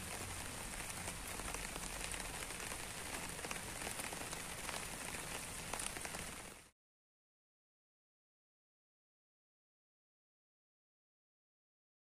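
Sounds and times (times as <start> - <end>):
rain falling on foliage: 0.0 - 6.8.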